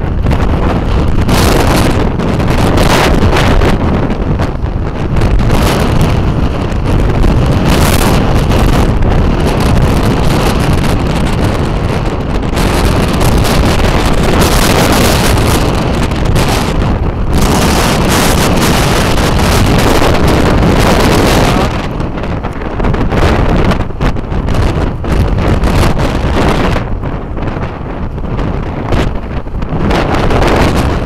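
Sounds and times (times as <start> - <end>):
strong wind buffeting microphone: 0.0 - 31.0.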